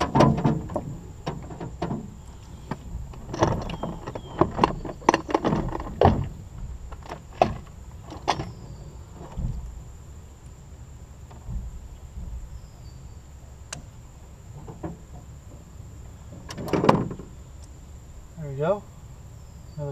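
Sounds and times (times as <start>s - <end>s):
fishing gear knocking in a boat: 0.0s - 9.9s, 11.3s - 12.7s, 14.5s - 17.4s.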